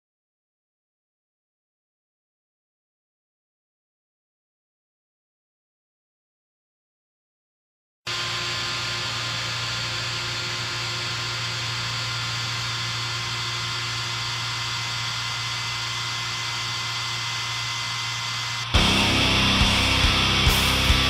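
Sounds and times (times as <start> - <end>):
distorted metal music: 18.3 - 21.0.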